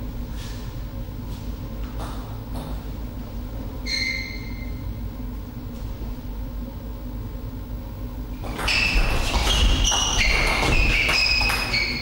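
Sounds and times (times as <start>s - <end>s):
shoe soles squeaking on floor: 3.8s - 4.9s, 8.4s - 12.0s
table tennis ball clicking: 8.5s - 12.0s.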